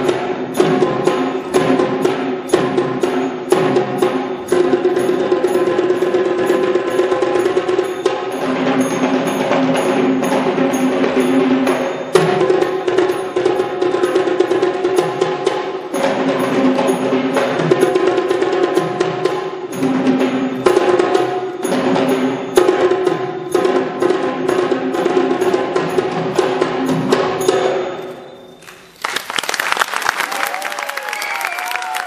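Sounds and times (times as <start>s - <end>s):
audience applause: 28.6s - 32.0s.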